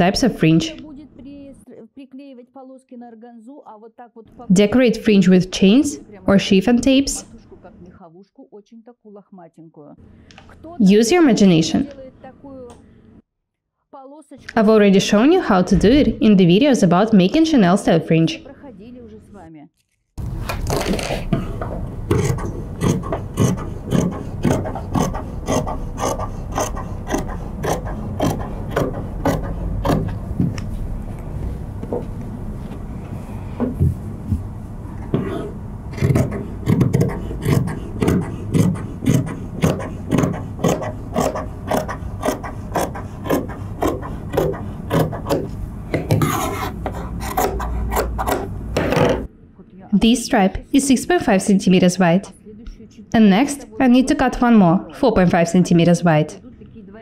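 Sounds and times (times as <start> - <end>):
scissors snipping through fabric: 22.1 - 30.6, 36.0 - 46.4.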